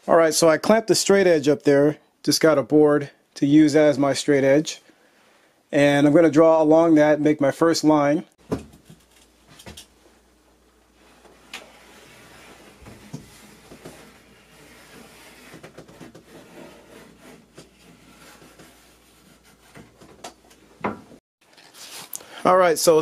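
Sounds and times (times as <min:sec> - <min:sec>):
marking tool scratching drywall: 0:11.2 - 0:20.0.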